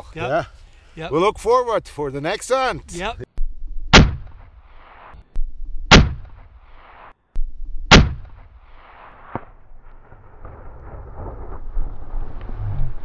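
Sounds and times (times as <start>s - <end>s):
rifle shot: 3.9s - 5.2s, 5.9s - 7.1s, 7.9s - 10.6s.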